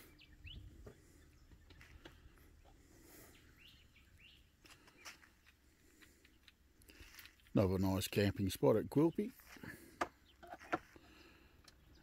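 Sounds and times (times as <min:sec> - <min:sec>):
faint bird chirps: 0:00.0 - 0:05.3.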